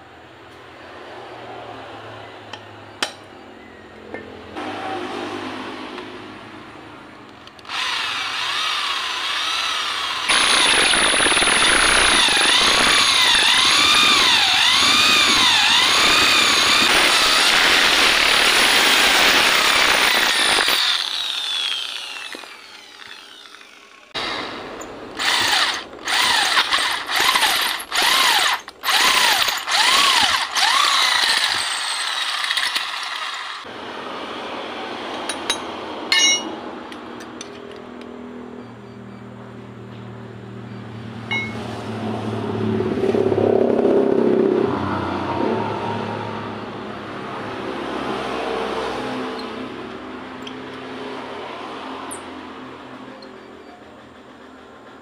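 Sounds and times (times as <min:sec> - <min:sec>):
electric drill whining: 0:07.5 - 0:33.7.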